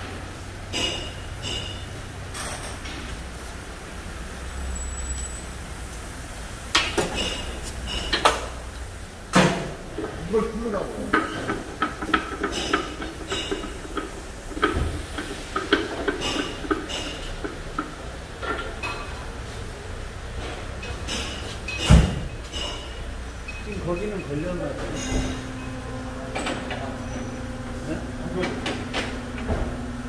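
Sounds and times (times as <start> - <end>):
metal clanking and knocking: 0.7 - 3.0, 6.7 - 8.6, 9.3 - 19.3, 20.4 - 23.2, 24.7 - 27.4, 28.3 - 29.8.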